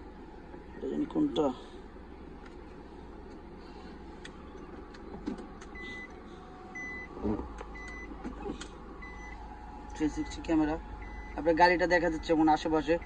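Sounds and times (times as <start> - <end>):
car engine idling: 0.0 - 13.0
reverse warning beeps: 5.7 - 8.2, 9.0 - 13.0.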